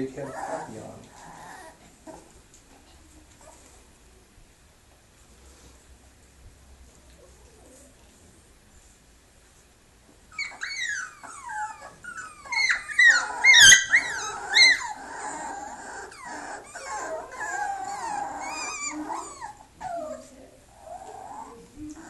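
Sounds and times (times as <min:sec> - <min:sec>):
puppy whining and yelping: 0:00.1 - 0:02.7, 0:10.3 - 0:22.0.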